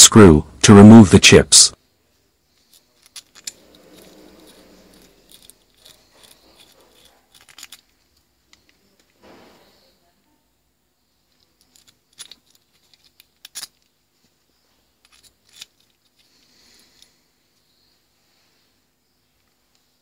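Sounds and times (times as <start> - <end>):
metal pick clicking and scraping: 2.6 - 9.2, 11.3 - 13.9, 15.0 - 17.1.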